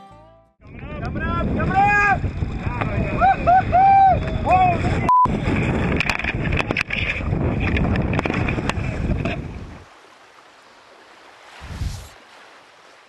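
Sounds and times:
wind rushing over microphone: 0.6s - 9.9s, 11.5s - 12.2s
water splashing around kayak: 1.4s - 13.0s.

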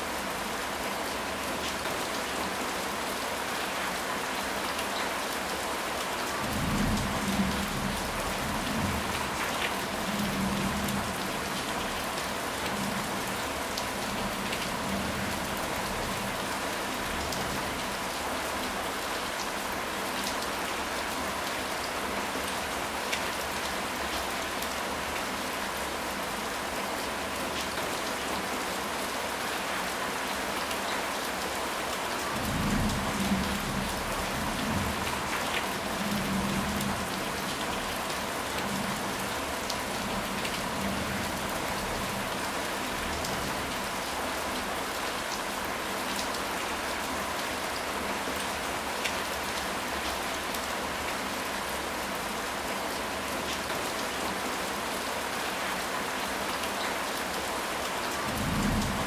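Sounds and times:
steady rain falling: 0.0s - 59.0s
low rumble of thunder: 32.4s - 35.3s, 58.3s - 59.0s.

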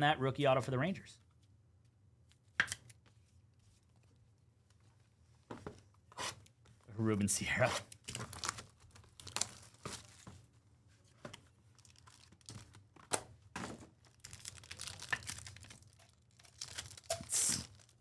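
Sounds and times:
packaging crinkling and scraping: 8.0s - 10.3s, 11.8s - 12.8s, 14.0s - 18.0s.

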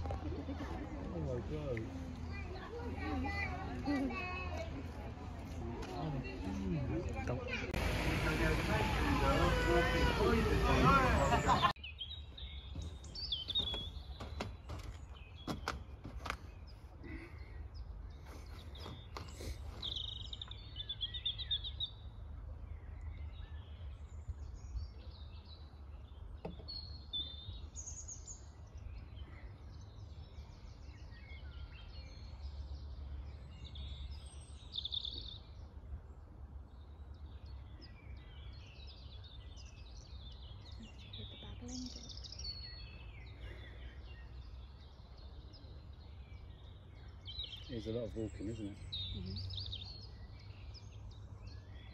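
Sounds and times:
small birds chirping: 0.0s - 51.9s
footsteps on wooden deck: 12.6s - 17.0s, 18.2s - 20.3s.

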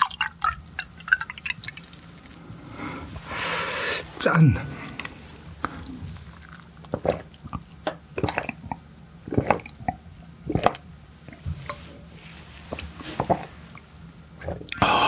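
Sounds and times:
wet swallowing gulps: 4.6s - 11.9s, 12.7s - 13.6s, 14.4s - 15.0s.

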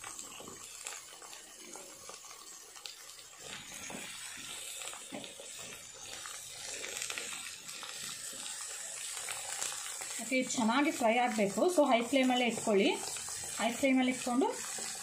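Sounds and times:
vegetables sizzling in oil: 0.0s - 15.0s
metal ladle stirring in pan: 11.8s - 15.0s.

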